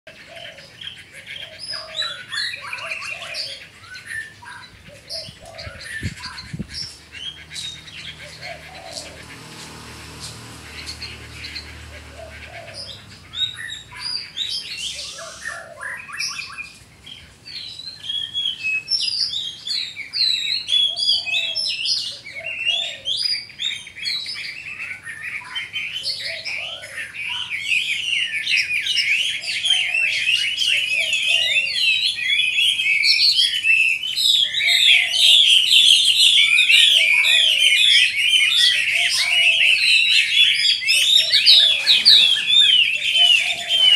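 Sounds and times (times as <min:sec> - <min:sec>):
bird singing whistled warbling song: 0:12.8 - 0:43.9.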